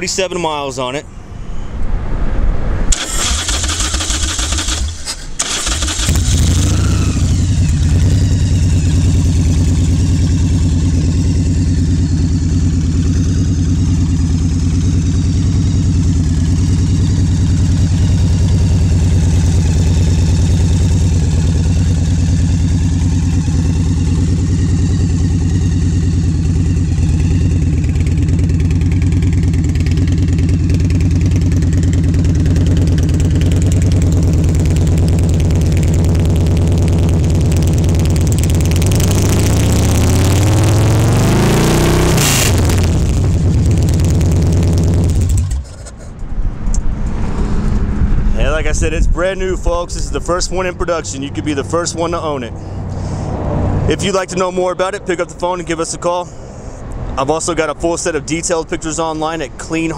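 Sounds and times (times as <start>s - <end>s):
engine cranking: 2.9s - 8.2s, 32.8s - 40.6s, 42.2s - 46.1s
engine idling: 2.9s - 41.4s, 42.0s - 45.9s.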